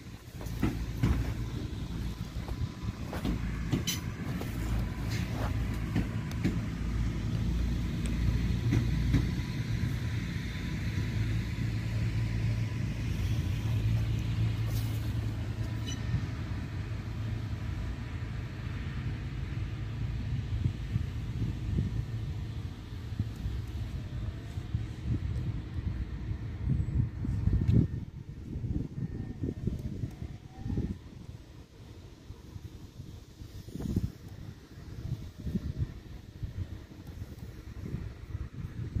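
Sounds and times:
wheels clicking over rail joints: 0.0s - 10.2s
electric train whine: 0.0s - 39.0s
low train rumble: 0.0s - 39.0s.

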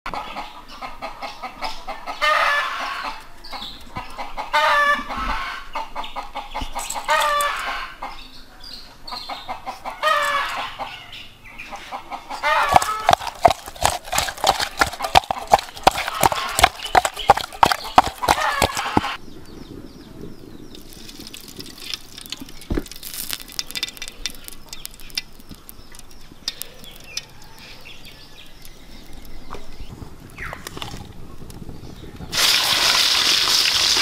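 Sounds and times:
chicken calling: 9.3s - 19.2s
wet squelching of hand mixing: 12.6s - 19.2s.

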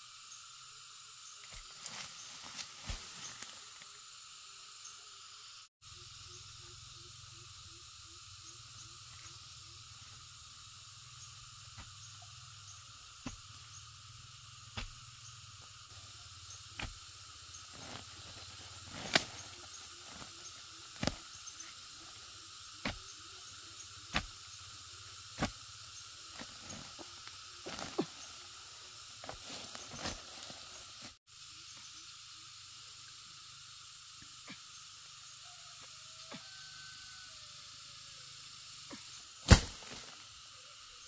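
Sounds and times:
insects hissing: 0.0s - 41.0s
wooden pole striking soil: 13.2s - 13.6s, 14.7s - 15.0s, 16.7s - 17.1s, 18.9s - 19.5s, 21.0s - 21.2s, 22.8s - 23.1s, 24.1s - 24.4s, 25.4s - 25.7s, 26.3s - 28.2s, 39.4s - 40.1s.

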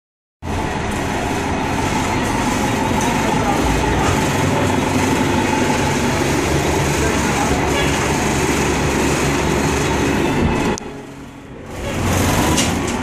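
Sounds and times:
bus engine and road rumble: 0.4s - 13.0s.

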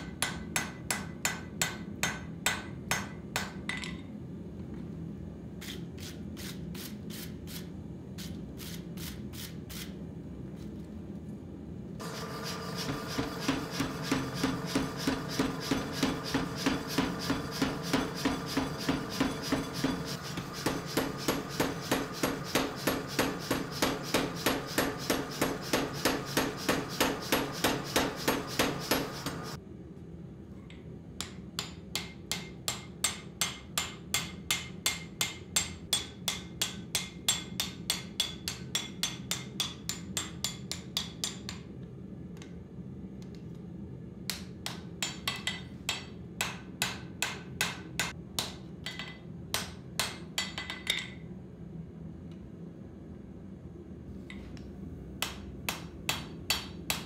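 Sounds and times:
motor hum: 12.0s - 23.8s
power hammer pounding steel: 12.0s - 29.6s.

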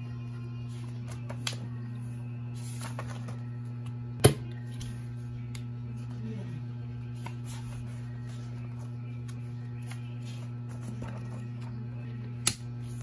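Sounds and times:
soft background music: 0.0s - 13.0s
steady low hum: 0.0s - 13.0s
notebook pages turning: 7.2s - 11.8s.

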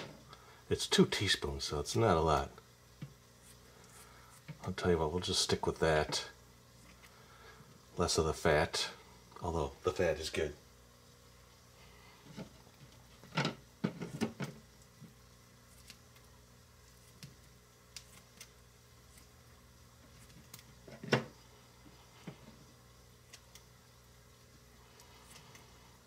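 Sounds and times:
scissors snipping bacon: 16.9s - 19.3s.

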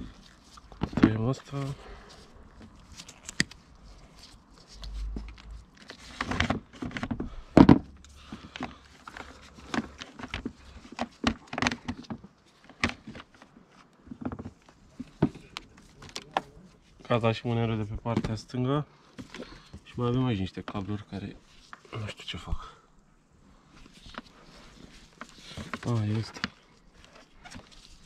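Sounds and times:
clicks and rustles of handwork: 0.0s - 17.1s, 23.7s - 28.0s.

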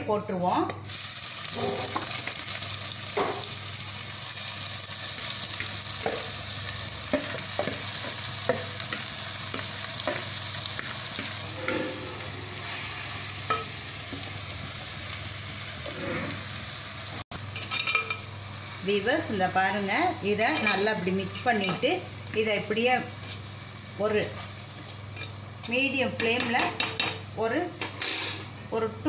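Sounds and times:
vegetables sizzling in oil: 0.8s - 28.9s
steel spoon scraping pot: 11.2s - 12.8s.

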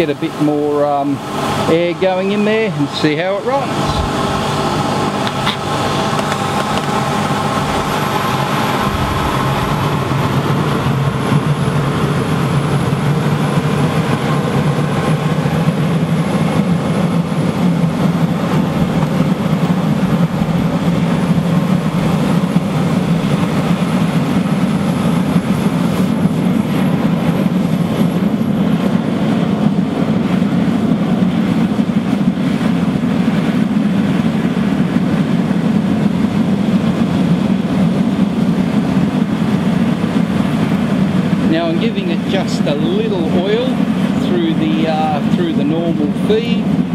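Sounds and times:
furnace air blower rushing: 0.0s - 46.9s.

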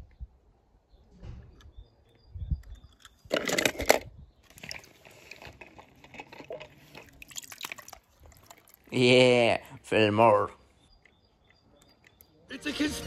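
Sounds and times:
loose stones crunching: 2.9s - 10.0s.

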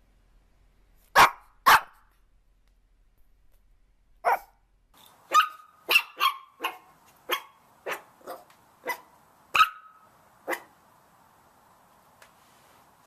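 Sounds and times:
puppies barking: 5.3s - 10.7s.

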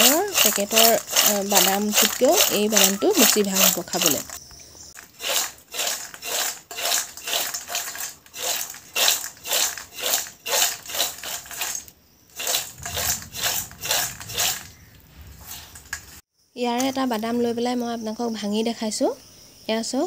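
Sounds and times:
peanuts rattling in metal bowl: 0.0s - 4.4s, 5.0s - 16.2s.

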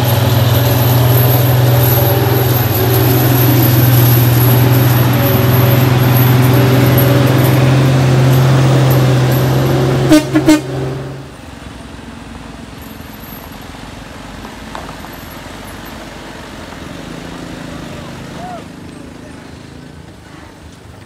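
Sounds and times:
truck engine droning: 0.0s - 21.0s
truck horn toots: 6.4s - 11.3s.

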